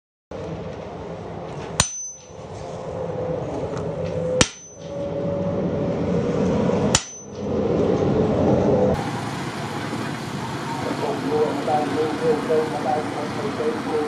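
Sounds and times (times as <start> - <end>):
hammer striking steel: 1.8 - 2.4, 4.4 - 5.0, 6.9 - 7.4.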